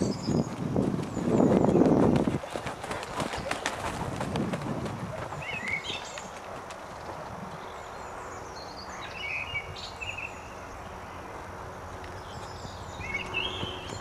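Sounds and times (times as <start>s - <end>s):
outdoor background hiss: 0.0s - 14.0s
small birds chirping: 5.3s - 14.0s.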